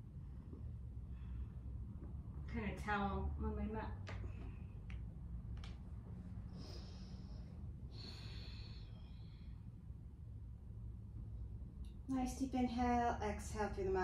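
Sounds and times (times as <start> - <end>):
steady low hum: 0.0 - 14.0
woman breathing slowly: 0.5 - 2.1, 6.1 - 10.5.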